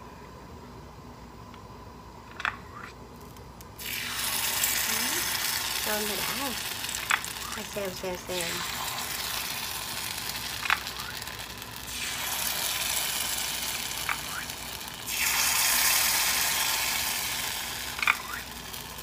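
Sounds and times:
batter sizzling in hot oil: 3.8s - 19.0s.

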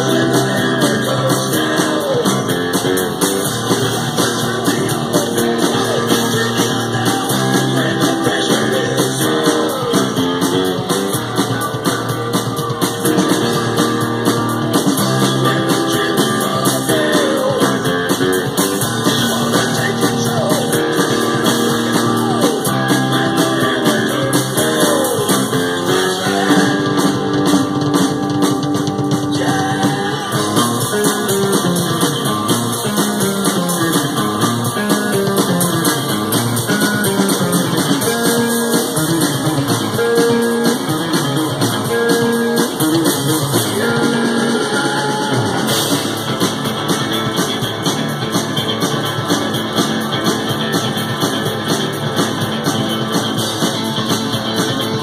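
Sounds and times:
bass guitar: 0.0s - 55.0s
drum kit: 0.0s - 55.0s
electric guitar: 0.0s - 55.0s.

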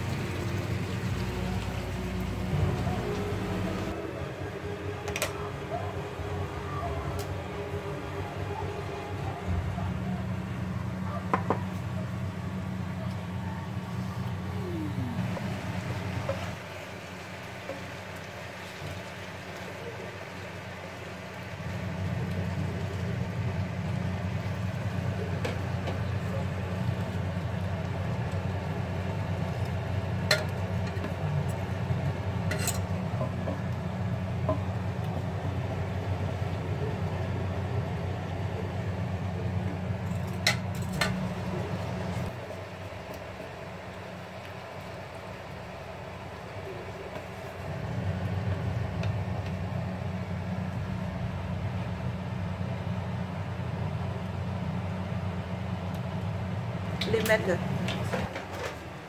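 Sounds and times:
low kitchen rumble: 0.0s - 59.0s
utensils clicking against pans: 30.2s - 31.6s, 32.4s - 33.7s, 40.1s - 41.3s.

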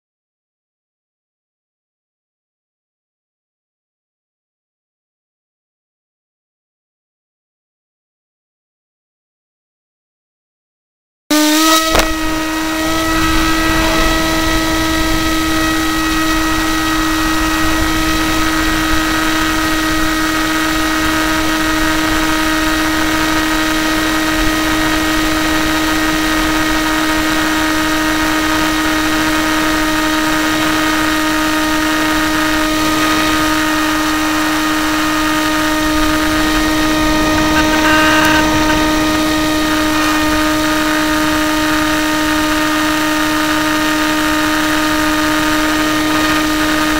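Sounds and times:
model plane motor whine: 11.3s - 46.9s
wind hiss: 12.1s - 27.3s.

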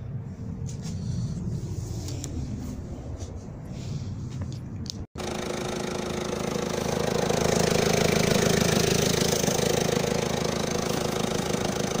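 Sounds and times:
diesel engine idling: 5.2s - 12.0s.

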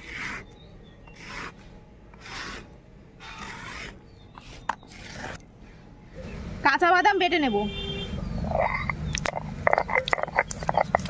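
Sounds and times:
paste scraped on grinding stone: 0.0s - 1.6s, 2.2s - 5.4s, 9.6s - 11.0s.

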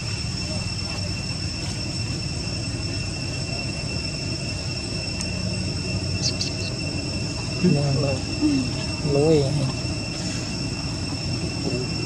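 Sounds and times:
insect drone: 0.0s - 12.0s.

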